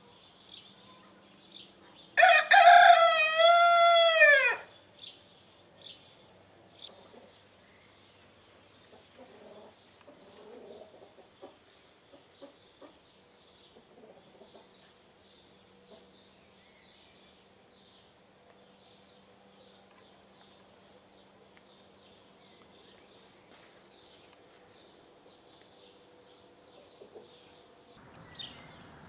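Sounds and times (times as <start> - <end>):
rooster crowing: 2.2 - 4.7
hens clucking: 8.8 - 13.0.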